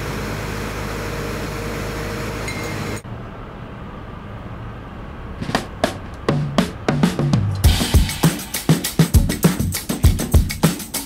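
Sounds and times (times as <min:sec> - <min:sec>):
excavator running: 0:00.0 - 0:07.8.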